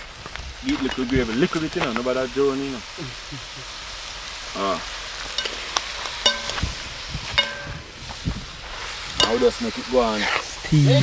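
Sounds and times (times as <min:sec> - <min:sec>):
food sizzling: 0:00.0 - 0:11.0
metal spoon clinking on pot: 0:05.4 - 0:05.6, 0:06.3 - 0:06.7, 0:07.4 - 0:07.8, 0:09.2 - 0:09.5.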